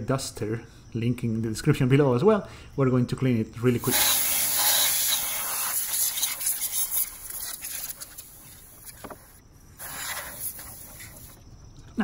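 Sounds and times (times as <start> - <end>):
compressed air duster hissing: 3.8 - 11.4.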